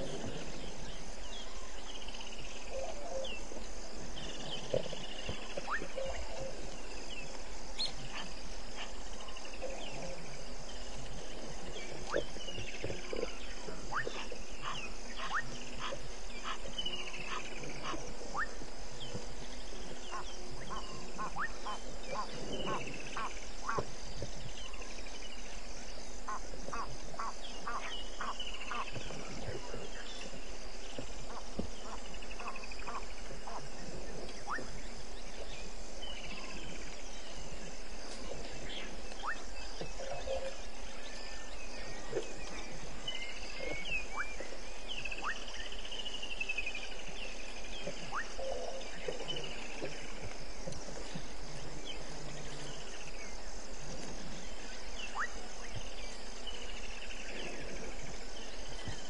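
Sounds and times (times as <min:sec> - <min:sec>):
insect trill: 0:00.0 - 0:59.0
frog clicking calls: 0:12.0 - 0:18.6, 0:20.1 - 0:23.9, 0:26.2 - 0:30.4, 0:31.3 - 0:33.6, 0:39.1 - 0:40.6, 0:43.5 - 0:46.5, 0:47.9 - 0:50.9, 0:55.1 - 0:55.4.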